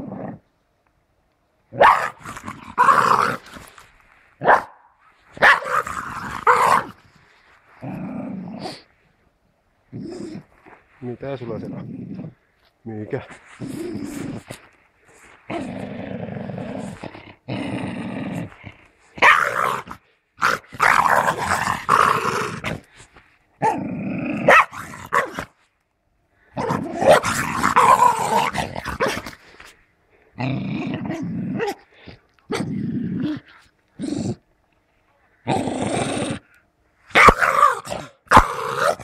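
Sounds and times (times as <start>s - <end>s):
dog growling: 13.4s - 23.0s, 26.5s - 29.7s, 30.3s - 34.4s, 35.4s - 39.0s.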